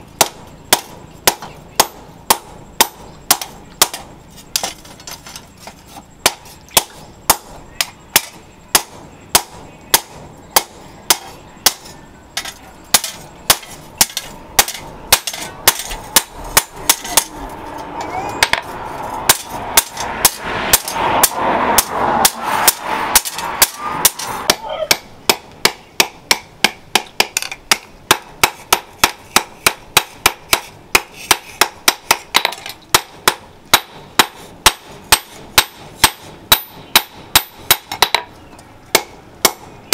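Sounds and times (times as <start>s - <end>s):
hammer striking hot steel: 0.2s - 5.2s, 6.2s - 17.8s, 18.4s - 38.3s.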